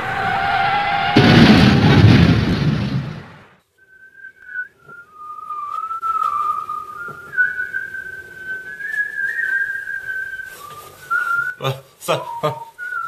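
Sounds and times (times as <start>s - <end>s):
person whistling a slow tune: 3.8s - 13.0s.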